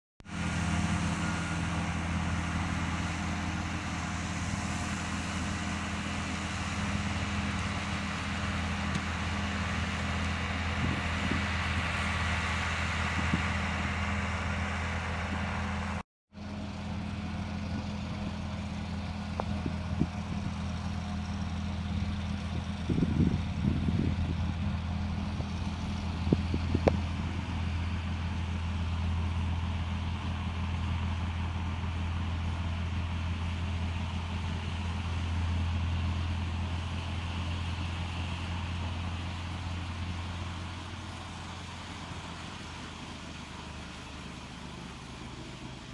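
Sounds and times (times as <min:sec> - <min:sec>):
tractor engine droning: 0:00.2 - 0:45.9.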